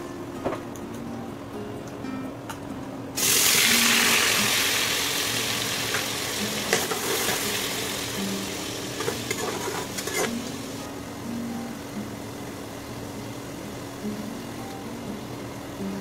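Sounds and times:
paste sizzling in hot oil: 3.2 - 10.8.

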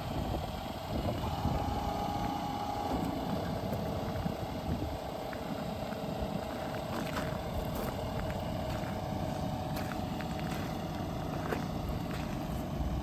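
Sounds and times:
diesel truck idling: 0.0 - 13.0
steady whine: 0.0 - 13.0
hydraulic lowering: 0.9 - 4.6.

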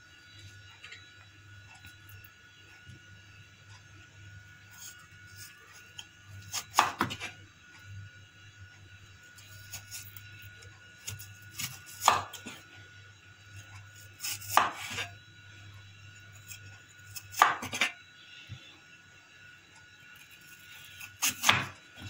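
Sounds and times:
knife slicing potato onto board: 6.5 - 7.3, 11.1 - 12.6, 14.2 - 15.1, 21.2 - 21.7.

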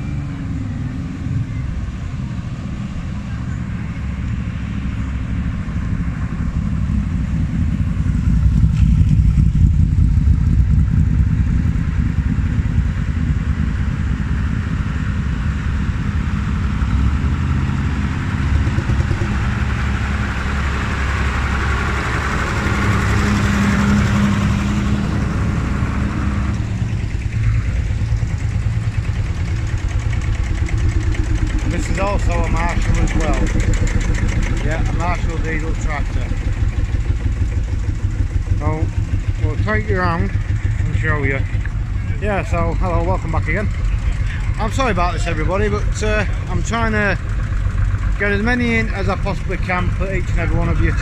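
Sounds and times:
tractor engines running slowly: 0.0 - 51.0
motorcycle riding past: 4.0 - 51.0.

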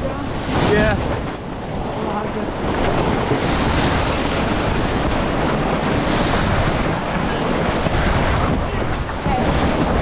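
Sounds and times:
water rushing along hull: 0.0 - 10.0
wind buffeting microphone: 0.0 - 10.0.

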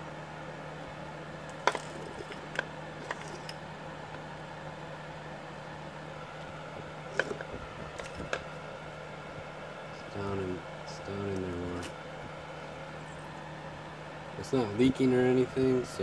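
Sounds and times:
steady background hum: 0.0 - 16.0
metal parts knocking on concrete: 1.6 - 3.6, 7.1 - 8.4.

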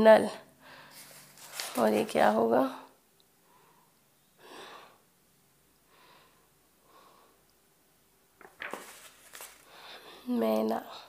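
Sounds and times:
paper page rustling and clicks: 1.0 - 2.4, 8.4 - 9.7.

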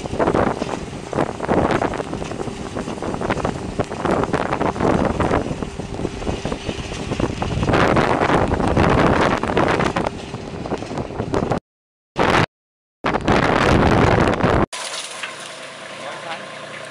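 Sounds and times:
disc scraping over gravel: 0.0 - 11.0
loader engine running: 0.0 - 11.6.

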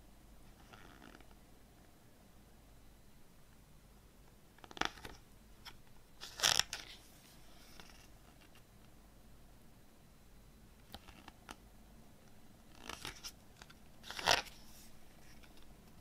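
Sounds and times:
glossy paper page turning: 12.7 - 15.7.

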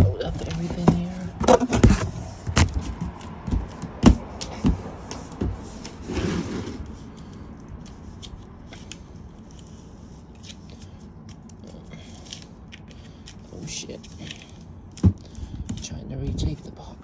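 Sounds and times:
rustling scrape: 5.0 - 11.0.

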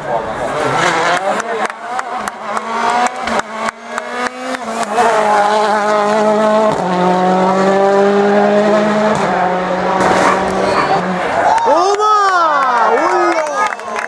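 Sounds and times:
rally car engine revving: 0.0 - 11.5
exhaust bangs and pops: 10.0 - 10.7.

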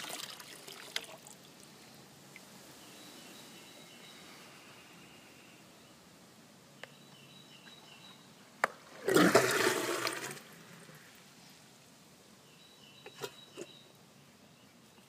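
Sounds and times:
water rushing down drain: 0.0 - 1.1, 9.0 - 10.6.

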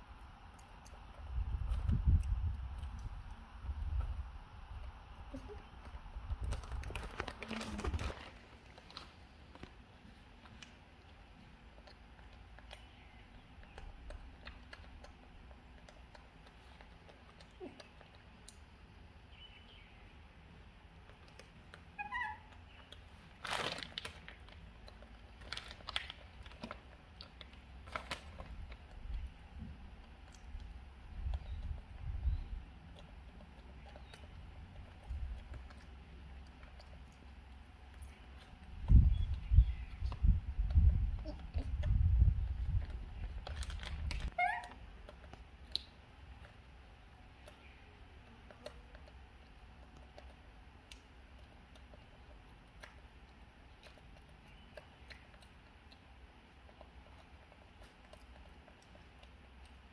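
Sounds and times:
monkey crunching crispy snacks: 5.3 - 18.9, 20.9 - 59.9
plastic wrapper crinkling: 6.4 - 9.7, 23.1 - 29.0, 43.2 - 44.8
plastic snack bag rustling: 6.4 - 9.8, 23.1 - 28.8, 43.2 - 44.3
baby monkey squeaky call: 22.0 - 22.6, 44.3 - 44.8.

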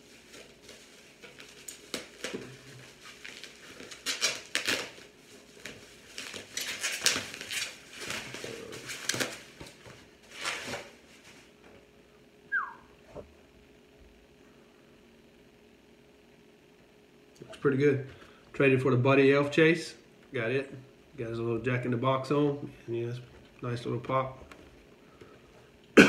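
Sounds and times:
plastic wrap rustling and crinkling: 0.0 - 11.6
short falling squeak: 12.5 - 12.9.

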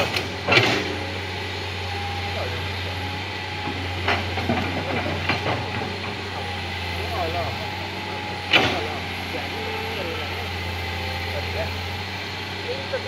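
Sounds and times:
excavator diesel engine running: 0.0 - 13.0.

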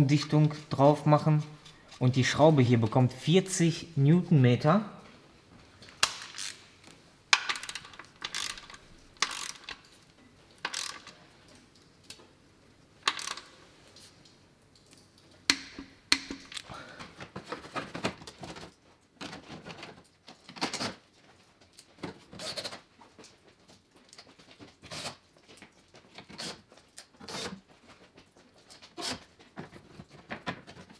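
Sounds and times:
ratchet wrench clicking: 6.1 - 6.6, 7.4 - 9.8, 10.6 - 11.2, 13.0 - 13.5.

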